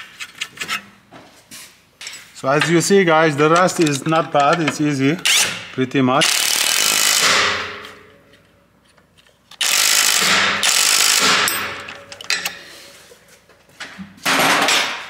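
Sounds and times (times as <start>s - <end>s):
impact wrench hammering: 3.4s - 8.3s, 9.6s - 12.6s.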